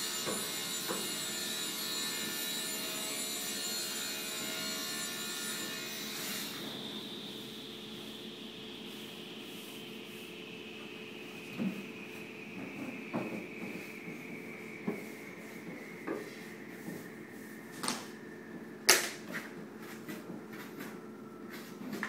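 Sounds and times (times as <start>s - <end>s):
steady hum with high whine: 4.1s - 22.0s
hands smoothing paper on panel: 8.9s - 10.3s, 13.7s - 17.6s.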